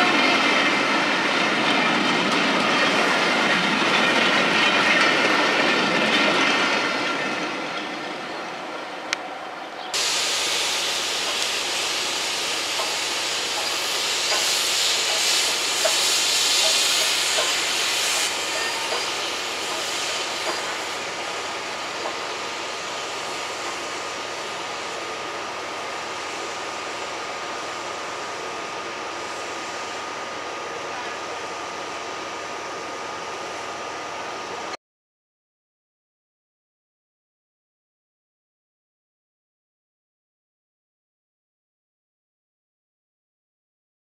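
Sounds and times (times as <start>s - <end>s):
steam locomotive hissing: 0.0s - 34.8s.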